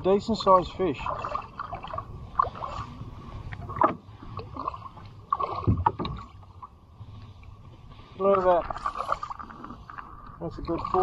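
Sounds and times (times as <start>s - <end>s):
fish thrashing and splashing water: 1.0s - 2.9s, 3.6s - 6.4s.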